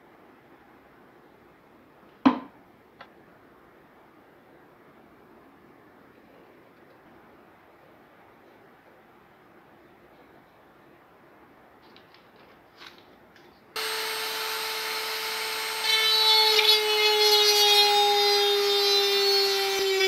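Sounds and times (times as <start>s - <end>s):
bit grinding fiberglass: 13.8s - 20.0s
rotary tool whining: 13.8s - 20.0s.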